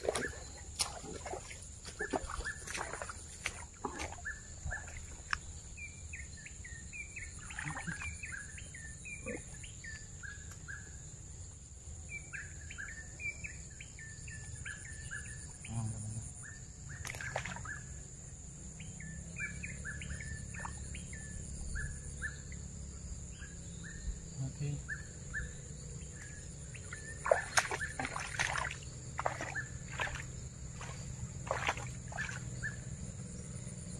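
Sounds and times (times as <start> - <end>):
small birds chirping: 0.0 - 11.2, 18.7 - 33.9
high insect drone: 0.0 - 33.9.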